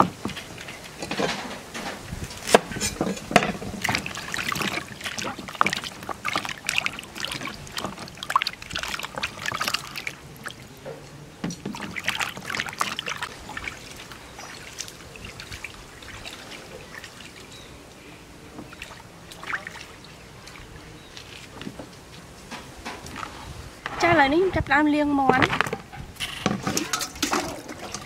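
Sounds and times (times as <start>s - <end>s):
hands splashing water in basin: 2.4s - 10.6s, 11.5s - 17.6s, 18.7s - 20.6s.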